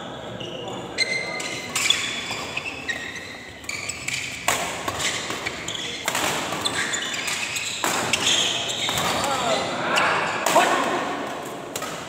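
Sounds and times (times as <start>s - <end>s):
shoe squeaks on court: 0.0s - 9.5s
racket striking shuttlecock: 4.2s - 9.2s.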